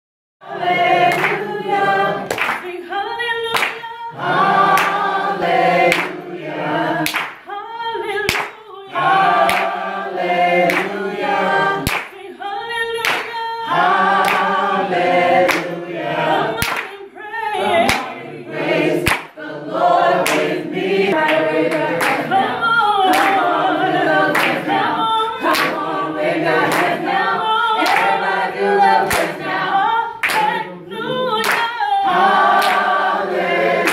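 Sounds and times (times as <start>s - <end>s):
women singing in harmony: 0.4s - 33.9s
sharp hand claps: 1.1s - 1.4s, 2.2s - 2.8s, 3.5s - 3.9s, 4.7s - 5.1s, 5.9s - 6.2s, 7.0s - 7.5s, 8.2s - 8.7s, 9.4s - 9.8s, 10.6s - 11.0s, 11.8s - 12.2s, 13.0s - 13.5s, 14.2s - 14.6s, 15.5s - 15.8s, 16.6s - 17.0s, 17.8s - 18.2s, 19.0s - 19.4s, 20.2s - 20.6s, 21.2s - 22.4s, 23.1s - 23.5s, 24.3s - 24.8s, 25.5s - 25.8s, 26.6s - 27.0s, 27.8s - 28.2s, 29.0s - 29.4s, 30.2s - 30.6s, 31.4s - 31.8s, 32.5s - 33.0s.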